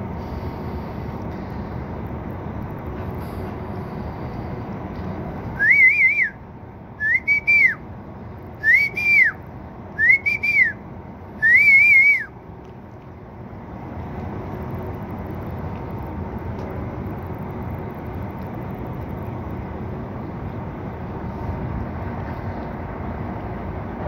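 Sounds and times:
whistled notes: 5.6 - 6.4, 7.0 - 7.8, 8.6 - 9.4, 10.0 - 10.8, 11.4 - 12.3.

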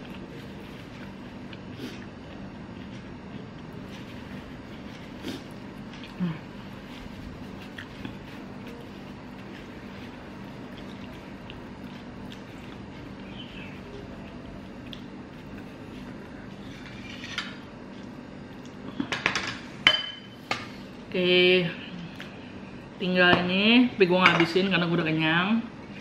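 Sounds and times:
low room hum: 0.0 - 26.0.

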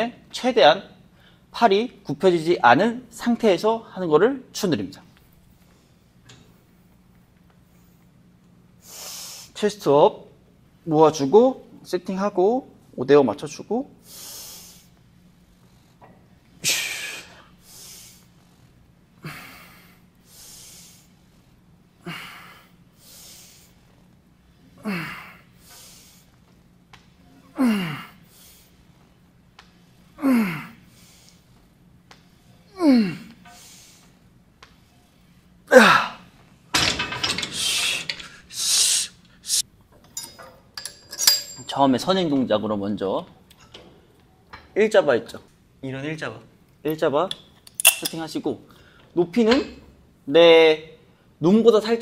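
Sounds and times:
man's strained groan: 24.8 - 25.4, 27.5 - 28.2, 30.2 - 30.8, 32.7 - 33.4, 35.7 - 36.2.

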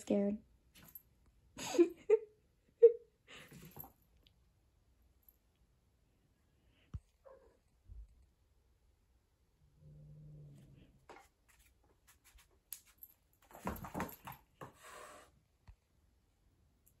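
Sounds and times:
paws scuffling on hard floor: 11.1 - 14.7.

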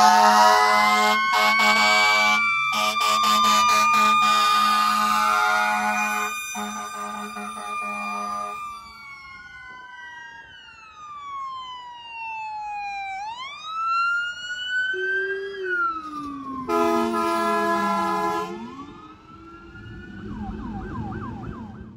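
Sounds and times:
air horn blast: 0.0 - 8.6, 16.7 - 18.7
fast yelping siren: 0.0 - 21.9
lower siren gliding: 0.0 - 21.9
siren wailing: 0.0 - 21.9.

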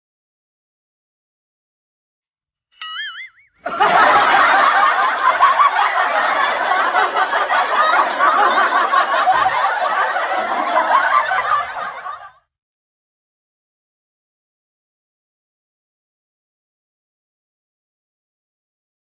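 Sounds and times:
brief warbling tone: 2.8 - 3.6
crowd laughing: 3.6 - 12.5.

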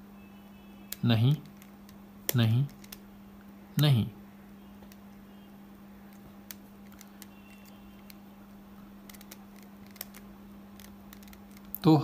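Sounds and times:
steady low hum: 0.0 - 12.0
plastic puzzle cube clicks: 9.0 - 11.8.

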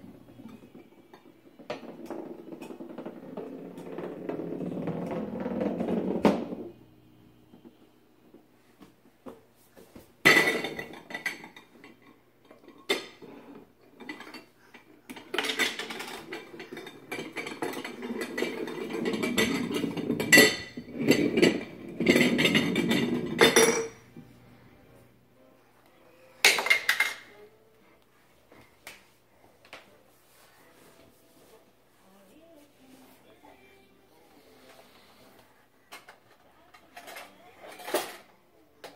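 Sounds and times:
glass jars clinking on wooden floor: 10.3 - 13.4, 15.1 - 24.2.

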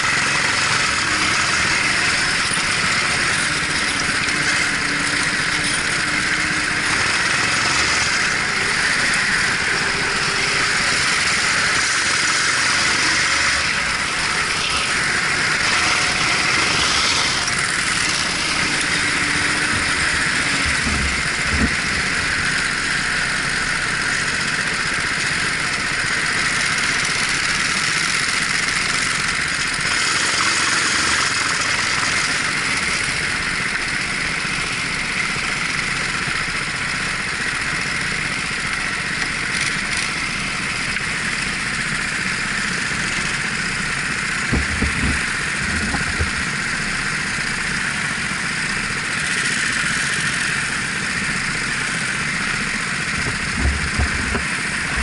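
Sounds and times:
kart engine drone: 0.0 - 55.0
low thumps: 44.5 - 46.5.

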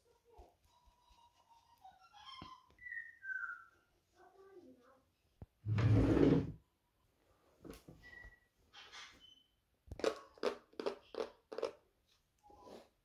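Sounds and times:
drawer sliding open: 5.7 - 6.6.

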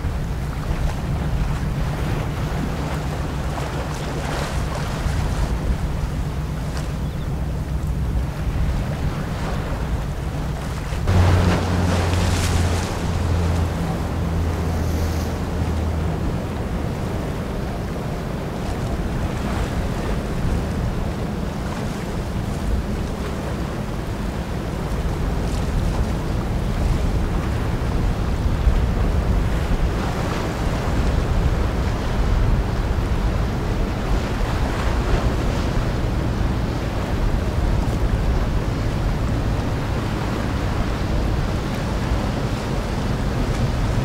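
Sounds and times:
water wash: 0.0 - 44.0
wind buffeting microphone: 0.0 - 44.0
water washing: 9.3 - 18.1.

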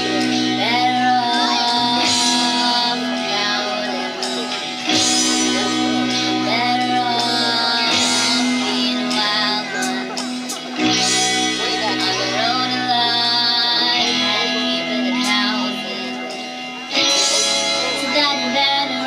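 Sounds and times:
woman singing: 0.0 - 16.5, 17.2 - 19.0
live pop band playing: 0.0 - 19.0.

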